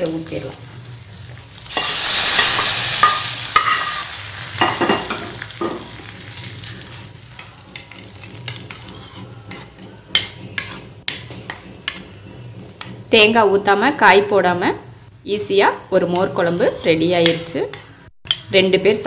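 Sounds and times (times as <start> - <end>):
hot oil sizzling: 0.0 - 9.3.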